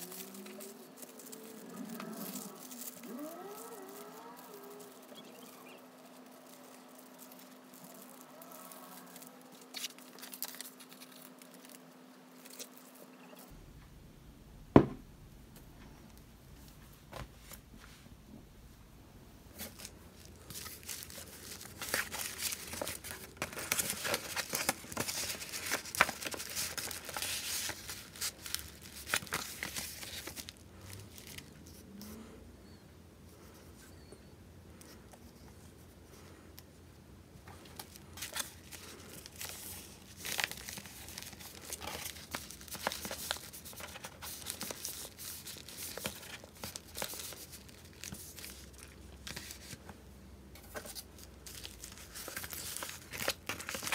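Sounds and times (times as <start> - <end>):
paper rustling and crinkling: 0.0 - 13.5, 19.5 - 32.2, 37.4 - 53.9.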